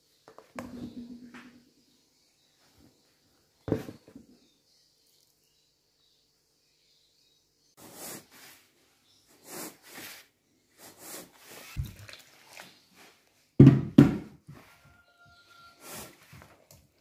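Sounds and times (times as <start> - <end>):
hands mixing dough in bowl: 9.4 - 13.3.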